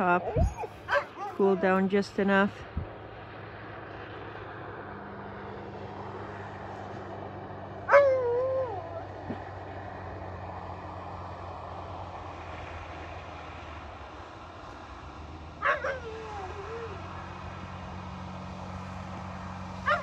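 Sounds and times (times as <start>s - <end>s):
dog whining: 0.0s - 1.7s, 7.9s - 9.4s, 15.6s - 17.1s.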